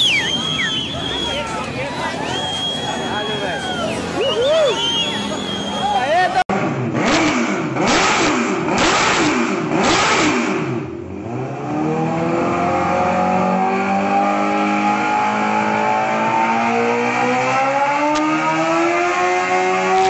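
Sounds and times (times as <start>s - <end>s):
engine revving: 3.9s - 20.0s.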